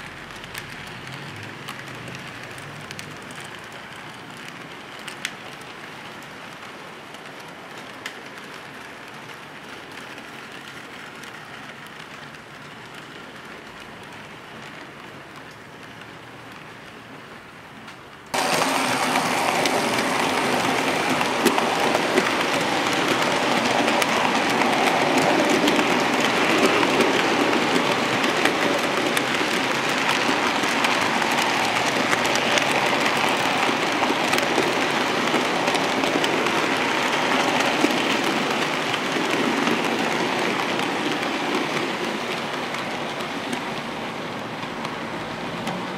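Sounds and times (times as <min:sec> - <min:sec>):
model train wheels rattling on rails: 0:18.3 - 0:45.9.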